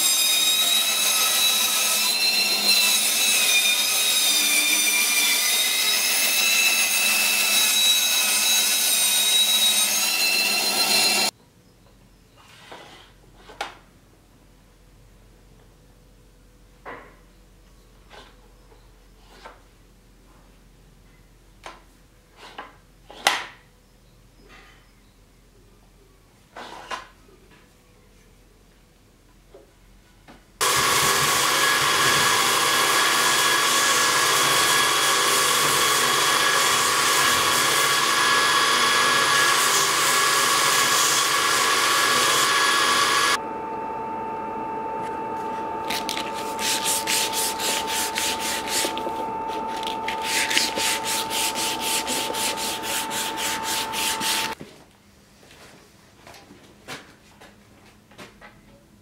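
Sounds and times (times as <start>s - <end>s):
machine high whine: 6.4s - 11.3s, 38.0s - 54.6s
motor humming: 42.5s - 54.6s
wood sanding rasps: 45.5s - 54.6s.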